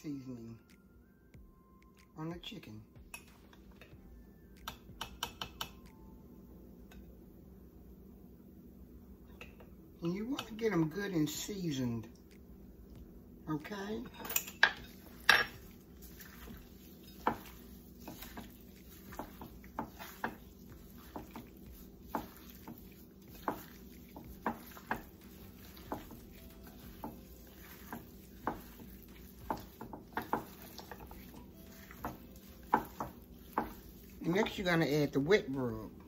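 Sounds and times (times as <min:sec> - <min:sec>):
spoon scraping metal bowl: 0:14.1 - 0:35.2.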